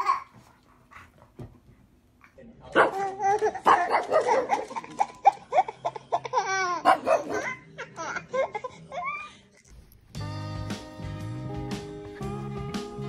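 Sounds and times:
small dog barking: 2.8s - 3.0s, 3.6s - 4.6s, 6.8s - 7.6s
baby laughing: 2.9s - 8.8s
background music: 10.1s - 13.0s.

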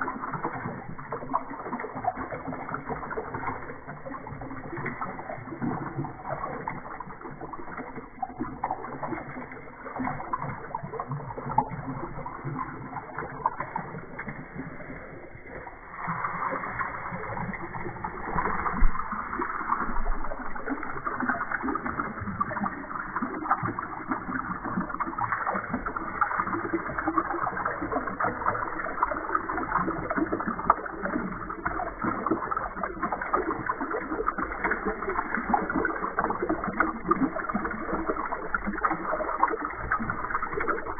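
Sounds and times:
slowed water pouring into a tub: 0.0s - 40.9s.

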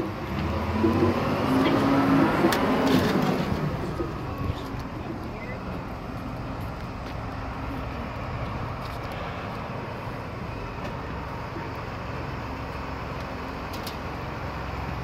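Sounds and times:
forklift engine running: 0.0s - 15.0s.

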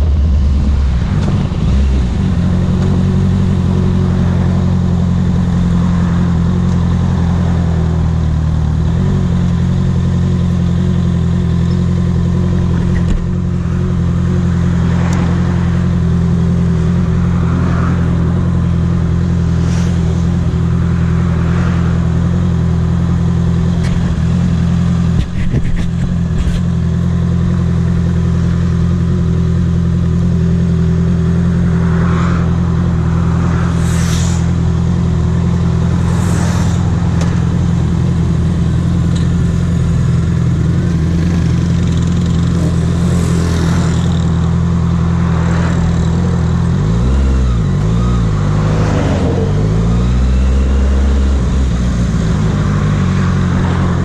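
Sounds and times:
cars passing: 0.0s - 54.0s
motorcycle engine idling: 37.0s - 43.2s.

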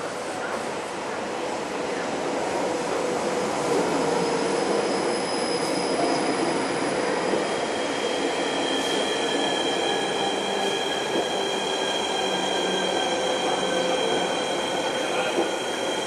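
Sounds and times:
train wheels squealing: 3.2s - 16.0s.

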